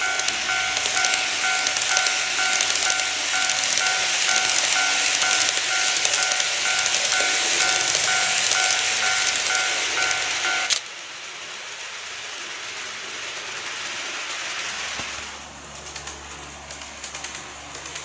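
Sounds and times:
level crossing bell chiming: 0.0s - 10.8s
model train running hiss: 0.0s - 18.0s.

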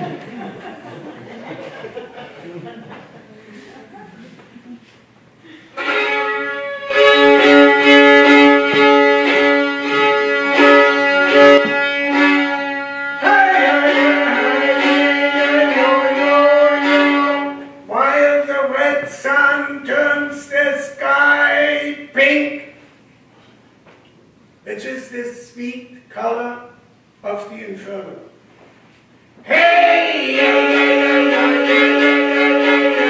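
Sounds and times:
violin playing: 5.7s - 17.8s, 29.5s - 33.0s.

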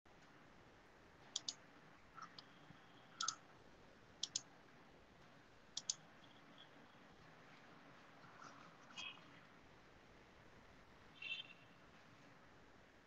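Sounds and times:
faint ticks: 1.3s - 1.6s
quick double clicks: 1.4s - 1.6s, 4.2s - 4.5s.

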